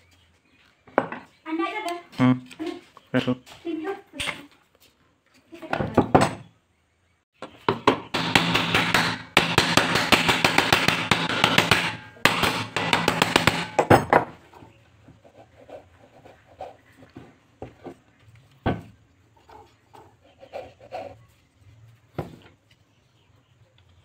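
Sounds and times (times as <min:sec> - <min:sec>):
hand tools tapping and rattling on metal: 0:07.4 - 0:14.5.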